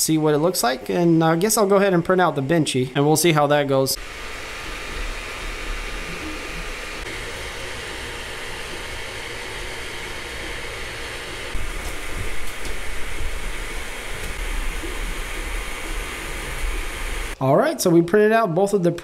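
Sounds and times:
cooling fans whirring: 0.0 - 17.4
faint stepper motors: 4.0 - 17.4.

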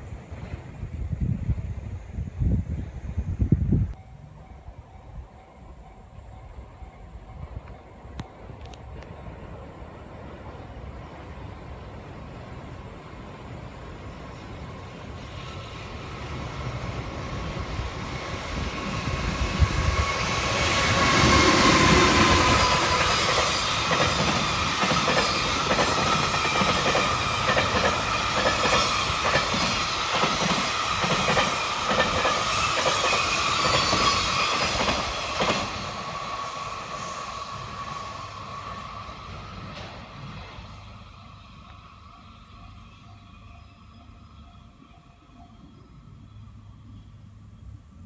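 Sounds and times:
train wheel squeal: 4.0 - 48.0
wheels clacking over rail joints: 16.2 - 36.2.

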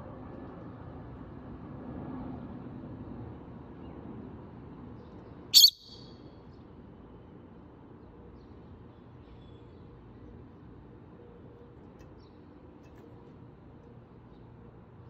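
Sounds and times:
lovebird shrill call: 5.6 - 6.0.

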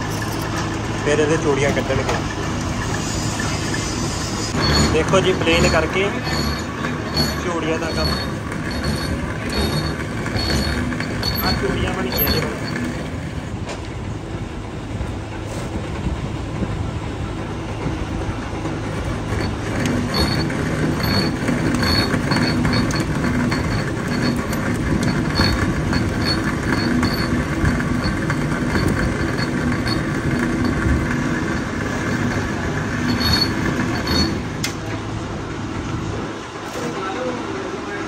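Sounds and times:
metal lathe running: 0.0 - 38.0
high-pitched squeaks: 1.3 - 13.2, 19.3 - 34.6.

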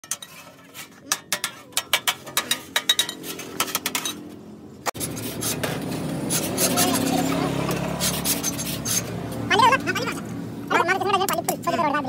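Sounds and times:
metal tool tapping sheet metal: 1.1 - 4.2.

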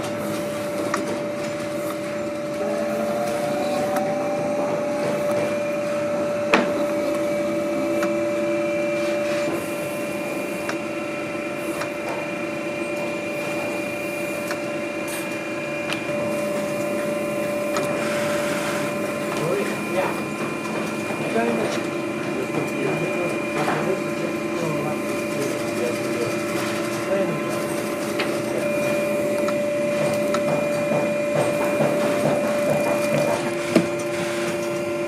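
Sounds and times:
machine motor hum and whine: 0.0 - 35.0.

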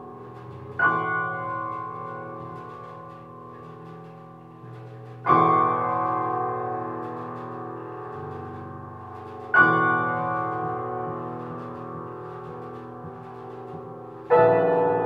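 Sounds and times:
low held piano notes: 0.0 - 15.0.

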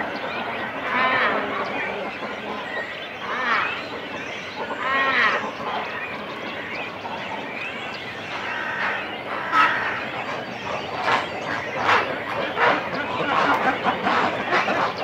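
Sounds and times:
birds calling at the nest: 0.0 - 15.0
din of calling birds: 0.0 - 15.0
harsh bird calls: 0.0 - 15.0.

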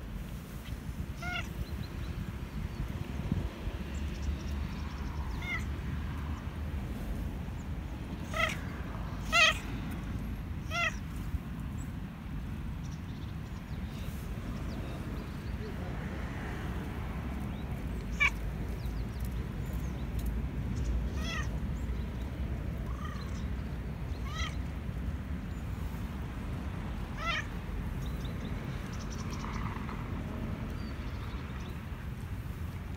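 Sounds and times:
cat meowing: 1.2 - 1.5, 5.4 - 5.7, 8.2 - 9.6, 10.6 - 11.0, 21.1 - 21.5, 24.2 - 24.6, 27.2 - 27.5.

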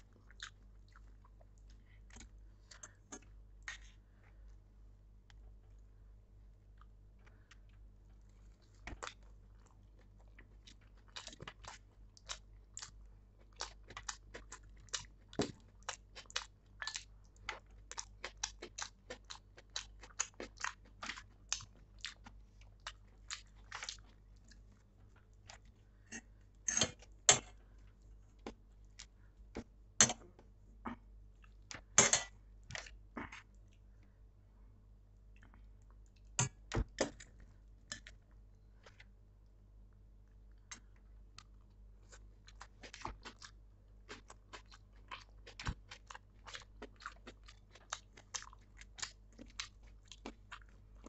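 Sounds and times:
chewing with wet mouth clicks: 0.1 - 3.8, 6.7 - 25.7, 40.5 - 51.0.

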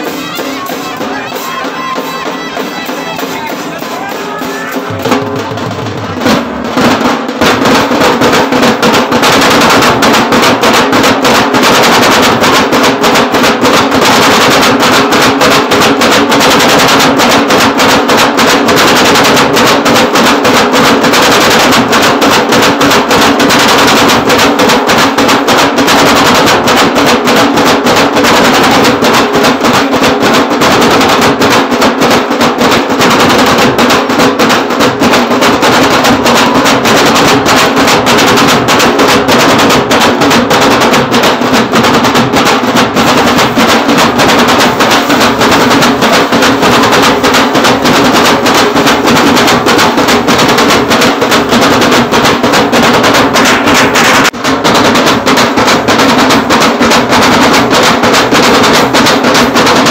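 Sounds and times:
rapid drum strokes: 0.0 - 59.9.

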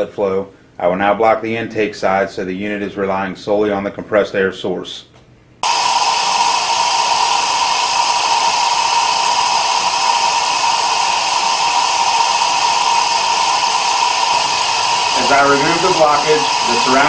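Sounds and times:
compressed air rushing with whistle: 5.6 - 17.0.

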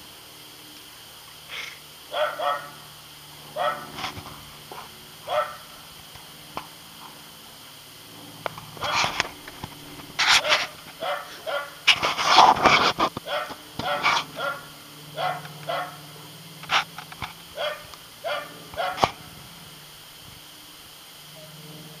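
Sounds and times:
dog play barking and yipping: 2.1 - 2.8, 3.6 - 4.1, 4.7 - 5.7, 10.1 - 12.4, 13.2 - 16.0, 17.6 - 19.2.

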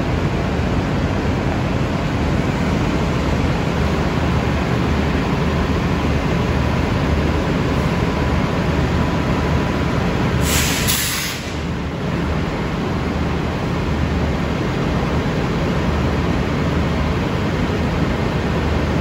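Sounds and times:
diesel engines idling: 0.0 - 19.0
compressed air hiss: 10.4 - 11.6.

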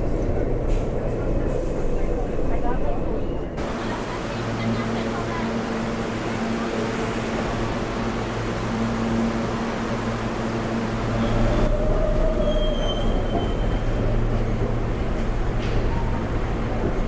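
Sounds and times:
subway train mechanical hum: 0.0 - 17.0
faint high squeal: 11.2 - 14.1.

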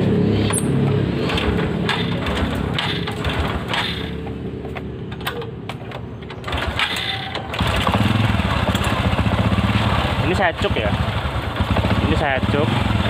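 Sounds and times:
engine ticking: 0.4 - 13.0
motorcycle engine idling roughly: 1.2 - 4.4, 6.4 - 13.0.

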